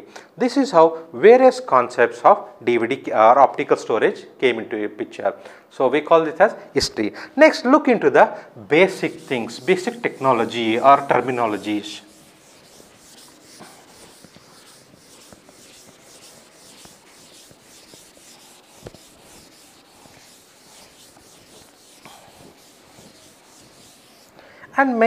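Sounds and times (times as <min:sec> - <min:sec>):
duster scrubbing blackboard: 0:08.8 - 0:24.4.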